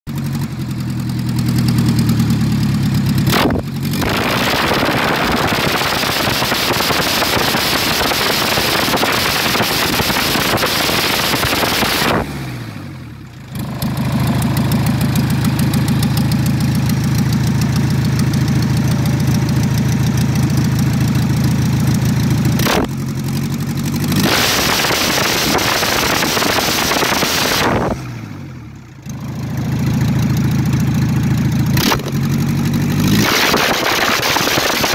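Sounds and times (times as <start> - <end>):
diesel engine idling and revving: 0.1 - 34.9.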